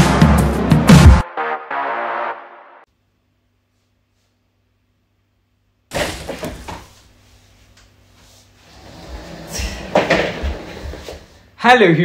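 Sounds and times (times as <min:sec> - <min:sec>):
person shuffling in office chair: 0:06.2 - 0:11.5.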